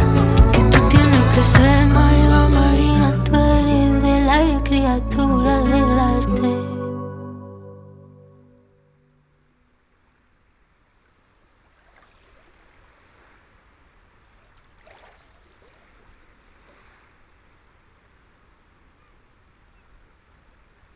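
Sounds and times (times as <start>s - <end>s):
soft splashes: 11.5s - 17.3s
lake water lapping: 11.5s - 17.5s.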